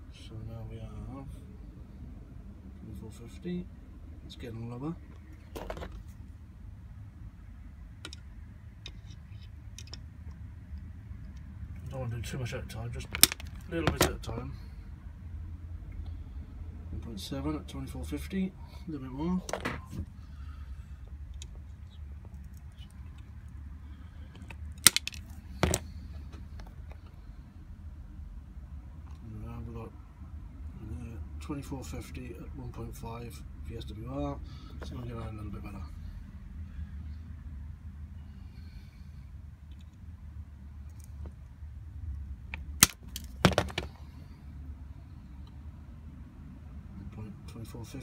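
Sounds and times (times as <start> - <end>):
steady low hum: 0.0 - 48.0
wire cutters snipping wire: 42.6 - 43.5.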